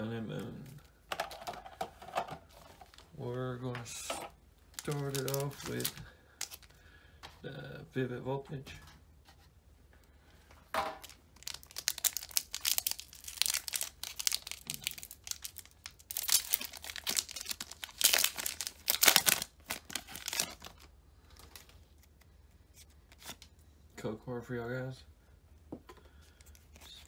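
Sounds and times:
foil wrapper tearing and crinkling: 0:04.8 - 0:06.7, 0:11.0 - 0:21.8.

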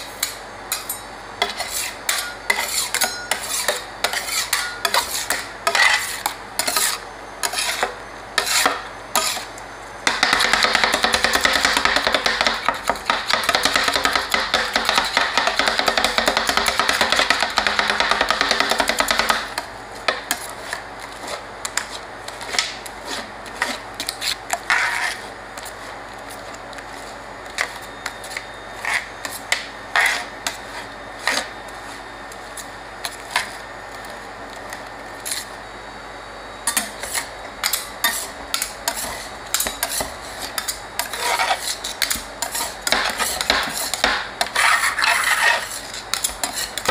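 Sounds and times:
metal spatulas scraping steel plate: 0:00.0 - 0:09.5, 0:23.0 - 0:25.3, 0:28.3 - 0:30.3, 0:36.7 - 0:46.9.

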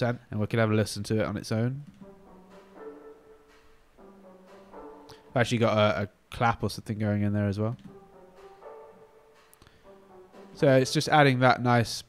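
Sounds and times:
reverberant synth pluck: 0:02.0 - 0:05.4, 0:07.9 - 0:11.0.

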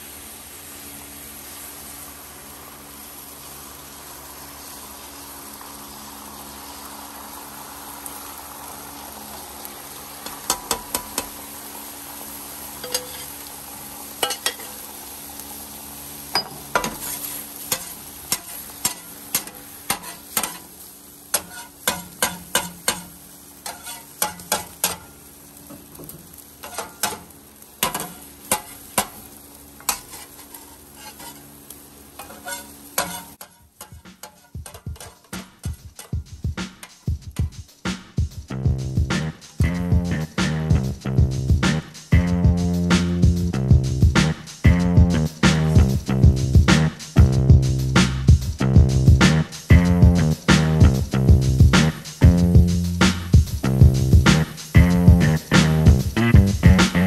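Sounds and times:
food sizzling on a griddle: 0:00.0 - 0:57.0.

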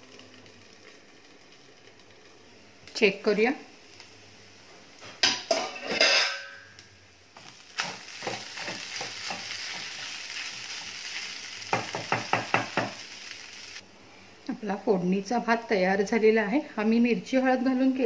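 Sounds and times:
food sizzling: 0:00.0 - 0:13.8
steel lid clanking: 0:05.2 - 0:06.7.

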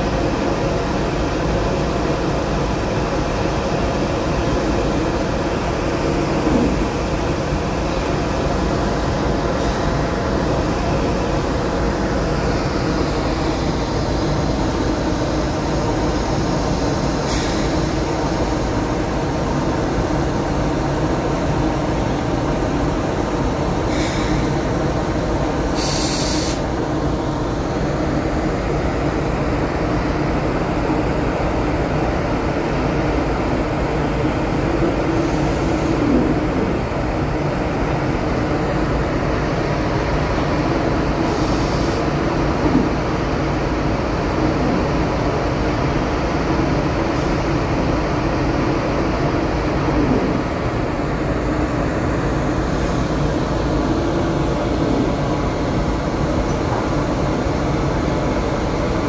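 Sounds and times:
short hisses: 0:25.8 - 0:26.6.

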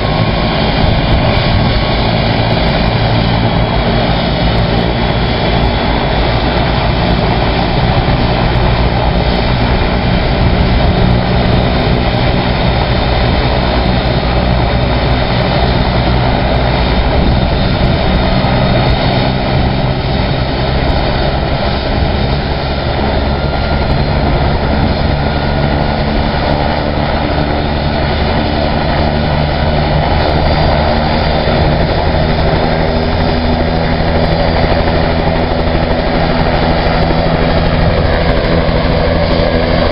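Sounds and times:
helicopter engine and rotor: 0:00.0 - 0:39.9.

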